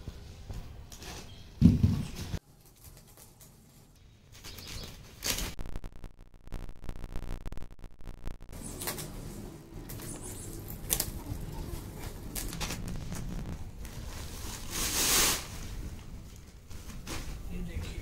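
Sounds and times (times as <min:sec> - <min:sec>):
plastic crinkling: 0:10.0 - 0:17.0
plastic sack rustling: 0:10.8 - 0:17.6.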